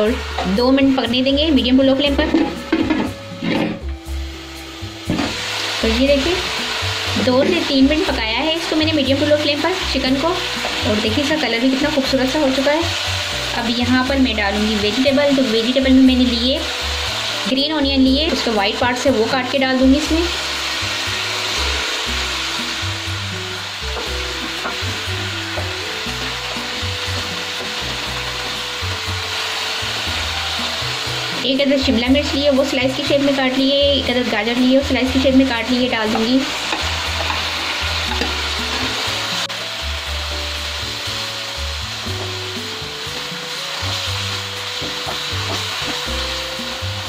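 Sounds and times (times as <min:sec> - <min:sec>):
background music: 0:00.0 - 0:47.0
food sizzling in hot oil: 0:00.0 - 0:47.0
spatula scraping a wok: 0:02.2 - 0:03.9, 0:36.0 - 0:39.4.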